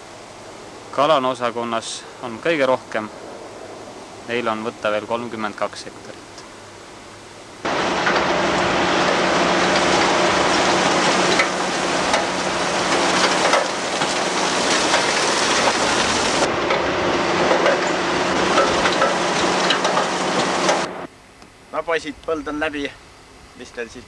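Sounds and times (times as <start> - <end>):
tractor engine drone: 0.0 - 22.9
conveyors clattering with potatoes: 7.7 - 20.9.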